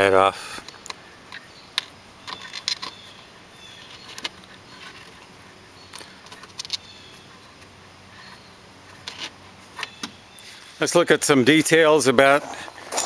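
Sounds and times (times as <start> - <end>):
steady low hiss: 0.0 - 13.0.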